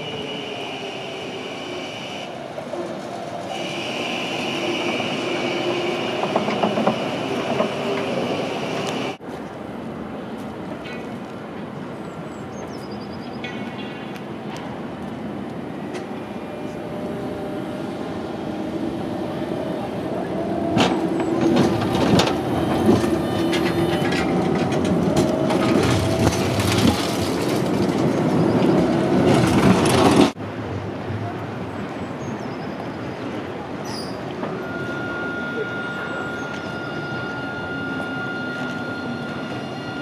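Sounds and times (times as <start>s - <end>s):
tram motor hum: 0.0s - 9.2s, 14.4s - 30.4s
street noise: 0.0s - 40.0s
wheels clattering on track: 5.9s - 8.3s, 20.3s - 30.4s.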